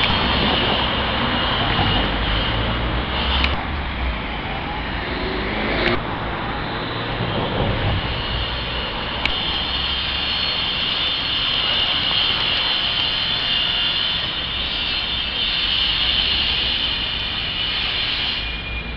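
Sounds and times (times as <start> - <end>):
city street noise: 0.0 - 18.9.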